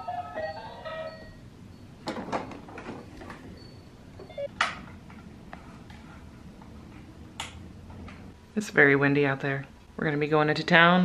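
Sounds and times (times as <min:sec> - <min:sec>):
low steady rumble: 0:03.4 - 0:10.0.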